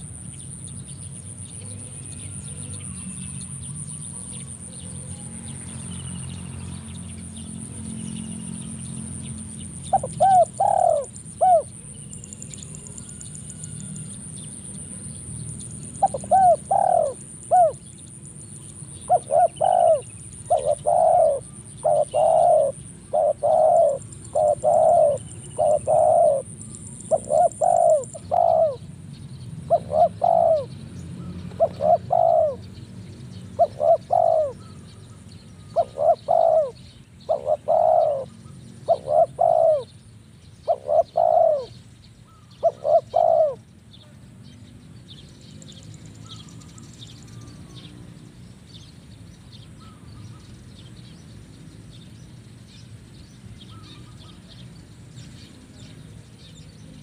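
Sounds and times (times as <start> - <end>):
dove cooing: 9.8 - 12.0, 15.8 - 17.9, 18.8 - 29.0, 29.6 - 32.8, 33.6 - 40.0, 40.6 - 43.7.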